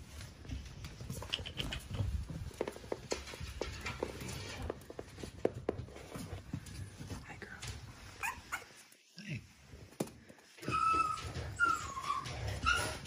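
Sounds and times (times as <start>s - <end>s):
puppy paws pattering on rubber mat: 0.0s - 9.0s, 9.6s - 13.0s
puppy whimpering: 8.2s - 8.7s, 10.6s - 13.0s.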